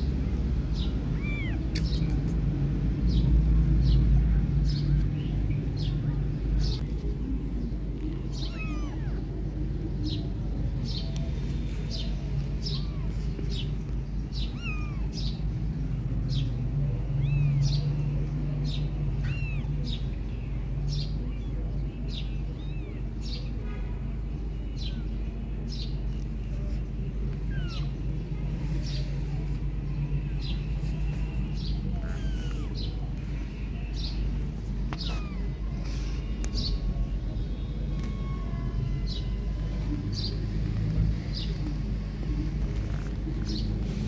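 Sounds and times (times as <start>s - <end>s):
kittens mewing: 0.8s - 2.4s, 7.8s - 18.0s, 18.6s - 20.1s, 22.4s - 23.3s, 24.7s - 43.6s.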